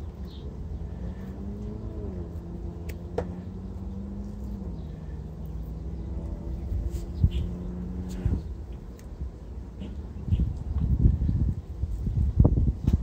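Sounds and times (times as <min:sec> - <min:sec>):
vehicle engine running: 0:00.0 - 0:11.5.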